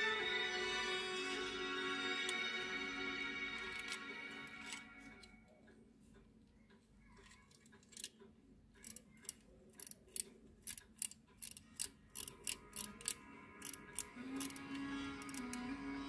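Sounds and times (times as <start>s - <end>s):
music: 0.0s - 5.5s, 12.3s - 16.0s
watch winding mechanism clicking: 7.0s - 15.6s.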